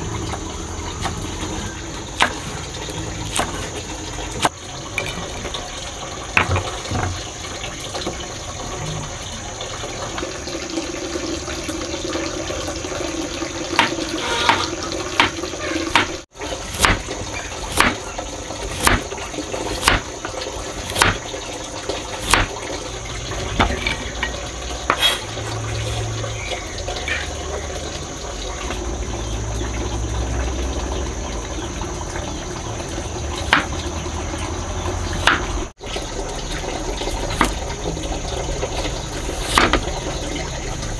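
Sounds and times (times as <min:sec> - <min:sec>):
cleaver chopping on wooden board: 0:02.2 - 0:02.5, 0:13.8 - 0:17.1, 0:17.7 - 0:18.0, 0:18.7 - 0:19.1, 0:19.8 - 0:20.1, 0:20.8 - 0:21.2, 0:22.2 - 0:22.5, 0:35.2 - 0:35.5, 0:39.5 - 0:39.8.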